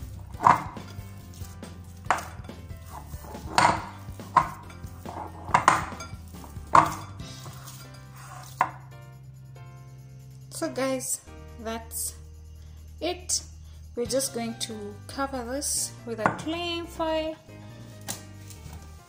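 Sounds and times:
quiet background music: 0:00.0 - 0:19.0
dough thudding in glass bowl: 0:00.3 - 0:01.0, 0:02.1 - 0:07.8.

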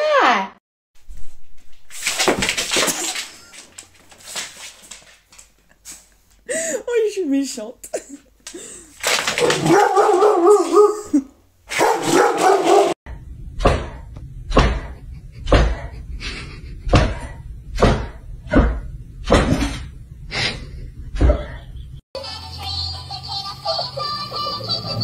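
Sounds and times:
dog barking: 0:09.4 - 0:11.1, 0:11.7 - 0:13.0.

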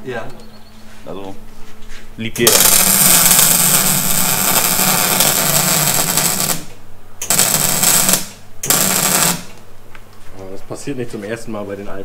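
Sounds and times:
welding arc crackling: 0:02.4 - 0:09.7.

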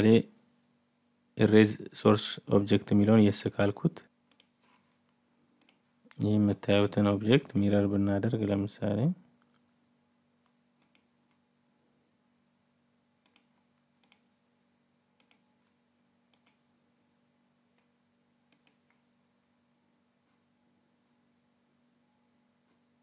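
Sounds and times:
faint computer mouse clicks: 0:04.3 - 0:06.2, 0:10.4 - 0:11.4, 0:13.2 - 0:14.3, 0:15.2 - 0:16.6, 0:18.5 - 0:19.0.

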